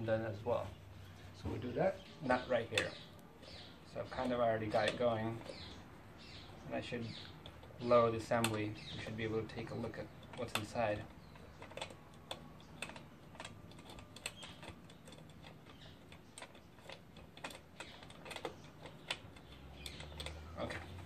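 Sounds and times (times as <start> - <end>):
light clicks and ticks: 7.1 - 21.0.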